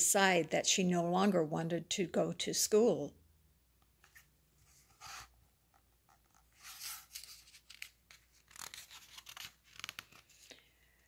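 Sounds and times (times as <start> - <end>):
book page turning: 4.0 - 10.5
faint paper crinkling: 4.0 - 11.0.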